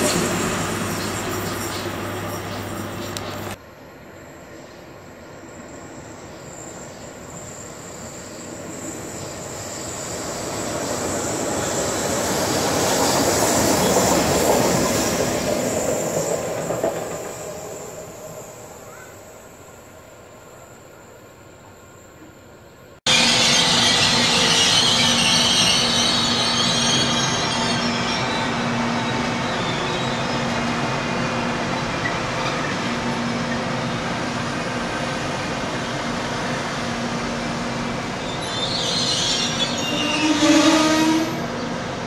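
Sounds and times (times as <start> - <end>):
wheel and rail hiss: 0.0 - 22.5
wheel squeal: 23.1 - 30.4, 38.2 - 41.4.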